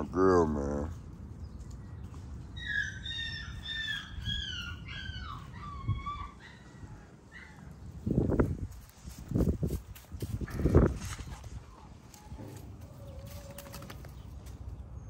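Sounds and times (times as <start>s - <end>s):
animal calls gliding downward: 2.6s - 7.6s.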